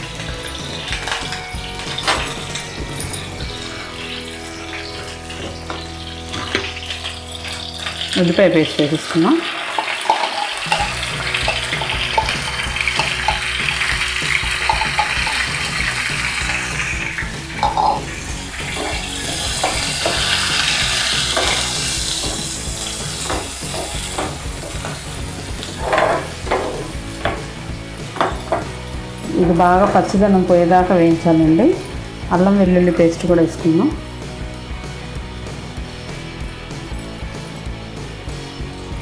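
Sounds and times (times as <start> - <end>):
onion paste sizzling in oil: 0.0 - 32.3
ladle scraping and tapping pan: 4.7 - 7.1, 9.8 - 30.1.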